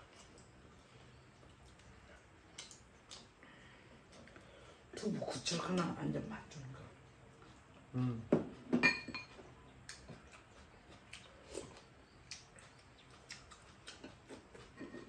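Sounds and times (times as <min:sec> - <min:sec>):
utensils clinking on ceramic bowls: 0:08.7 - 0:09.4.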